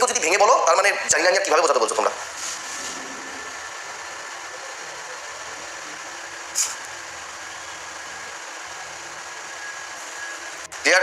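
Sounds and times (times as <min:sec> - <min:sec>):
low hum and hiss: 0:00.0 - 0:11.0
brief sharp hiss: 0:06.5 - 0:06.9.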